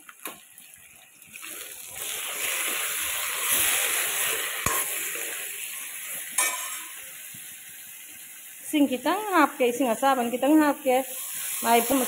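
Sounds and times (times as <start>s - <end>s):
food sizzling in hot oil: 0.0s - 12.0s
ladle clinking against wok: 6.4s - 6.9s.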